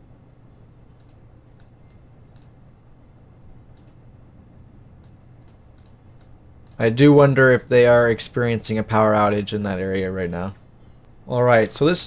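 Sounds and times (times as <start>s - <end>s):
low steady hum: 0.0s - 12.0s
computer mouse clicks: 1.0s - 2.6s, 3.7s - 4.0s, 5.0s - 6.8s.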